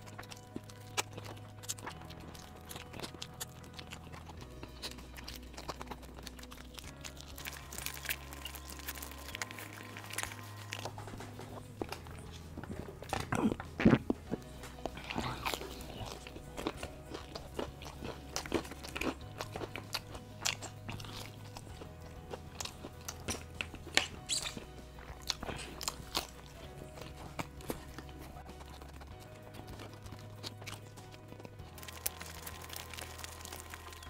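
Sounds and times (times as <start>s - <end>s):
background music with bass: 0.0s - 34.0s
crunching fried chicken: 0.0s - 34.0s.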